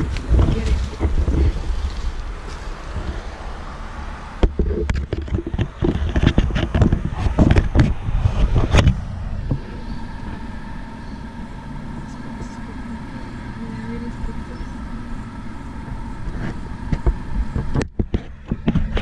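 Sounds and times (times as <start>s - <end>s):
faint steady hum: 0.0s - 19.0s
low rumble: 0.0s - 19.0s
knocks clicks and scrapes: 4.4s - 9.7s, 16.2s - 19.0s.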